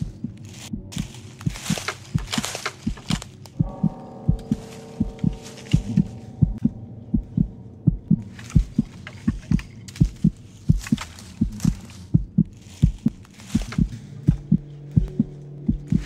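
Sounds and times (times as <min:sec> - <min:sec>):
heartbeat thumps: 0:00.0 - 0:16.0
held tone: 0:03.6 - 0:09.7.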